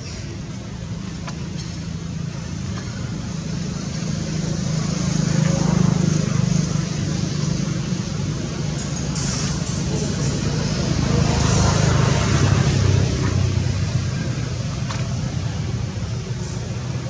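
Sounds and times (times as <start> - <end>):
vehicle engine hum passing: 0.0 - 17.0.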